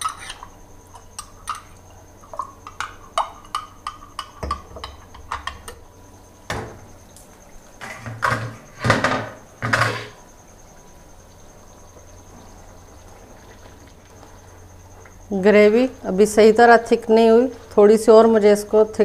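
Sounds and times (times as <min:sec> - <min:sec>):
spoon stirring in a pot: 0:00.0 - 0:05.8.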